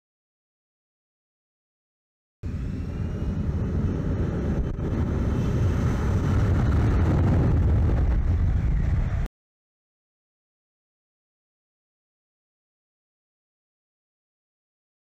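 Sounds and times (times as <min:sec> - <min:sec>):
faint rising whine: 0:02.4 - 0:09.3
jet engine roaring: 0:02.4 - 0:09.3.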